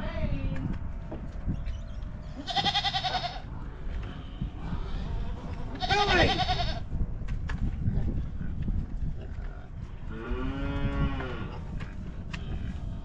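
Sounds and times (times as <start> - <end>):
goat bleating: 2.4 - 3.5, 5.6 - 6.8.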